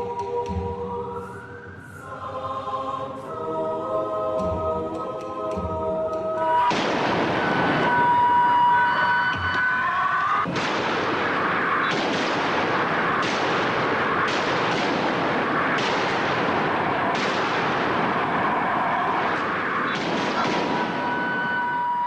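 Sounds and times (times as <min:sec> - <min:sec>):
rifle and shotgun gunfire: 0:06.7 - 0:07.7, 0:10.5 - 0:18.5, 0:19.2 - 0:21.2.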